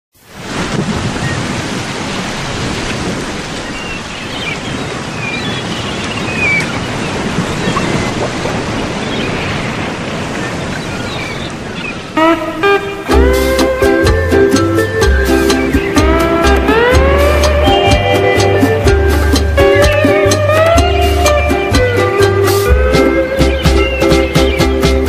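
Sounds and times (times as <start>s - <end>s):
ocean surf: 0.2s - 25.0s
music with plucked notes: 12.2s - 25.0s.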